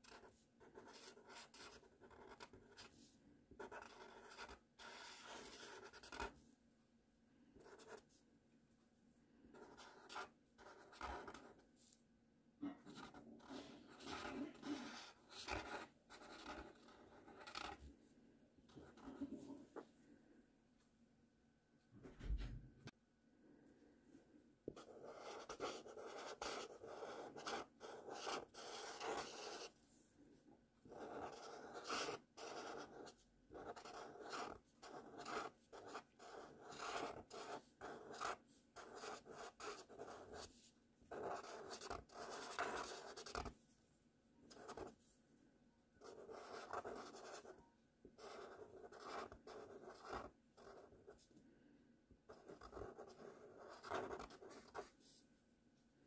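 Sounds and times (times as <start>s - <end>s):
marker writing on paper: 0.0s - 2.9s, 3.6s - 6.3s, 7.6s - 8.0s, 9.6s - 11.6s, 12.8s - 17.8s, 24.7s - 29.7s, 30.9s - 40.5s, 41.1s - 43.5s, 44.5s - 44.9s, 46.0s - 47.5s, 48.2s - 51.2s, 52.3s - 54.9s.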